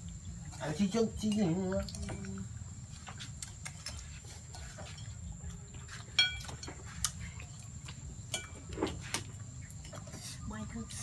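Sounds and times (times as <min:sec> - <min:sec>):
taps and rustles of tableware: 0:05.8 - 0:07.2, 0:08.3 - 0:10.2
sharp ringing clink: 0:06.2 - 0:06.4.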